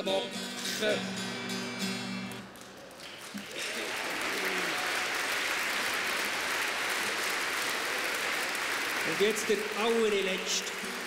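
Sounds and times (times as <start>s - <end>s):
acoustic guitar strumming: 0.0s - 2.4s
audience applause: 2.4s - 11.0s.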